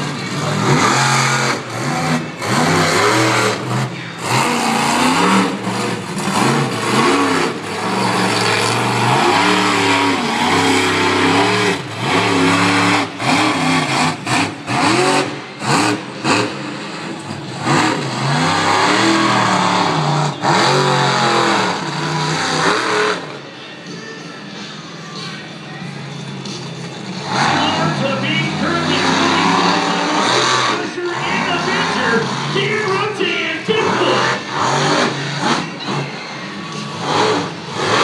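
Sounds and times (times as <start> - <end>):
monster truck engine revving: 0.0 - 23.6, 26.1 - 38.0.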